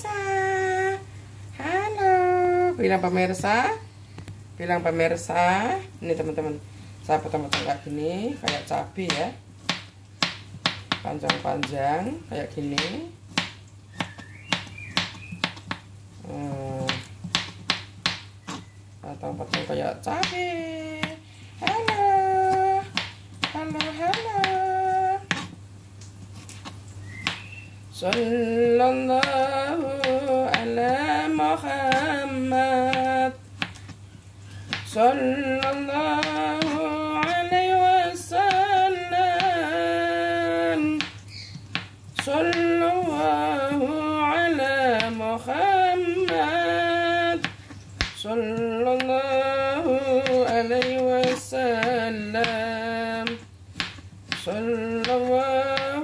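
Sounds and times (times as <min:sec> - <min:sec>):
woman singing slow melody: 0:00.0 - 0:03.8, 0:16.2 - 0:17.1, 0:19.0 - 0:25.4, 0:27.2 - 0:33.5, 0:34.8 - 0:41.2, 0:42.2 - 0:53.5, 0:54.4 - 0:56.0
knife chopping on cutting board: 0:49.9 - 0:56.0.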